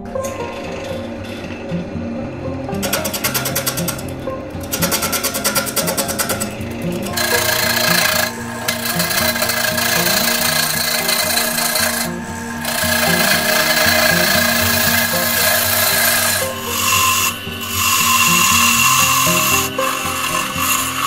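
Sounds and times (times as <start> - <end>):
lathe tool cutting wood: 0.0 - 21.0.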